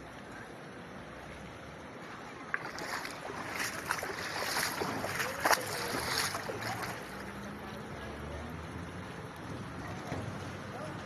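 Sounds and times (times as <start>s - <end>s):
floodwater sloshing and splashing: 0.0s - 8.1s.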